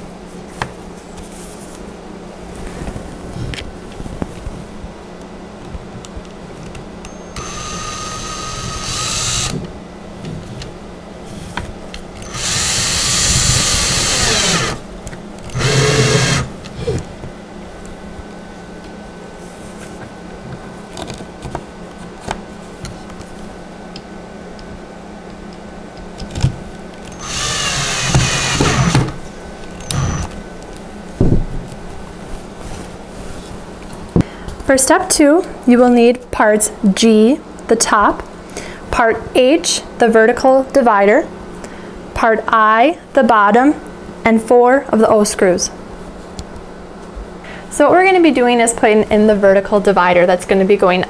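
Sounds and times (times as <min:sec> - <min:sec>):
cordless drill driving screws: 0:07.1 - 0:09.6, 0:12.2 - 0:14.8, 0:15.5 - 0:16.5, 0:27.1 - 0:29.1, 0:29.8 - 0:30.4.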